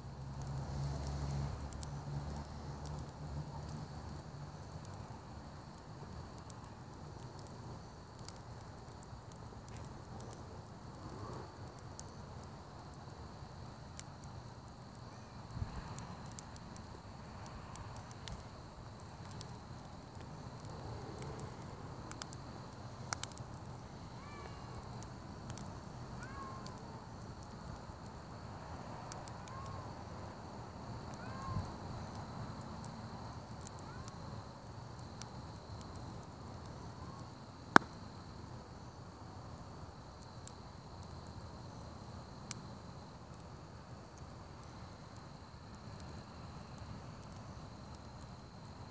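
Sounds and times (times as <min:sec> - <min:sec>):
campfire crackling: 0:00.0 - 0:48.9
low rush of burning logs: 0:00.0 - 0:48.9
sharp pops and snaps: 0:00.3 - 0:05.0, 0:05.8 - 0:13.2, 0:13.8 - 0:28.2, 0:34.9 - 0:38.1.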